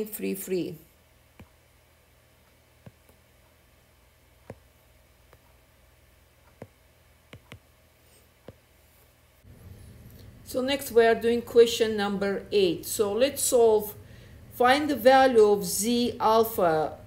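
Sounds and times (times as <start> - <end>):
faint room hum: 0.0 - 17.0
fingers tapping touchscreen: 1.3 - 1.6, 2.8 - 3.5, 4.4 - 5.7, 6.4 - 8.7.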